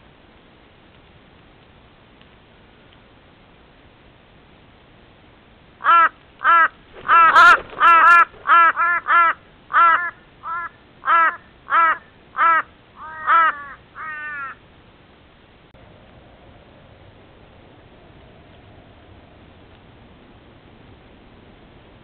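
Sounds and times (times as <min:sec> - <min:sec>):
crow cawing: 0:05.8 - 0:14.6.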